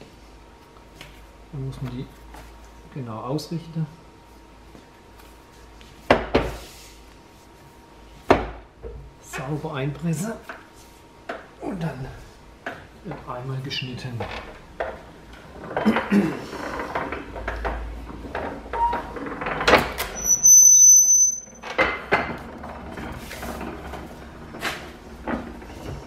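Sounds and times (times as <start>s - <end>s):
high squeal: 20.1s - 21.6s.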